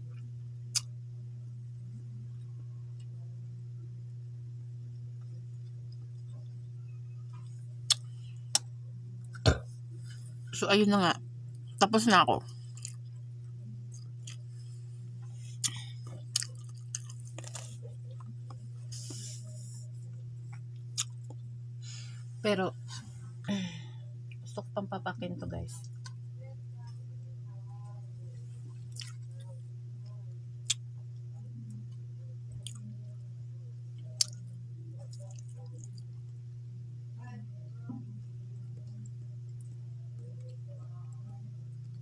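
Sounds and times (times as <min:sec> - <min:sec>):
steady low hum: 0:00.0 - 0:42.0
person chewing: 0:13.9 - 0:14.5, 0:15.5 - 0:19.2, 0:20.6 - 0:21.4, 0:28.9 - 0:29.2, 0:32.6 - 0:32.9, 0:34.2 - 0:34.5
wet mouth clicks and smacks: 0:34.2 - 0:34.4.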